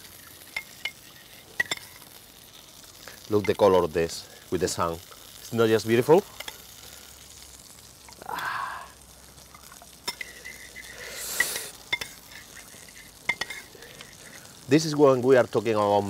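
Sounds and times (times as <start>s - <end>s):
meat sizzling in frying pan: 0.0s - 16.0s
metal spoon scraping ceramic dish: 10.1s - 13.7s.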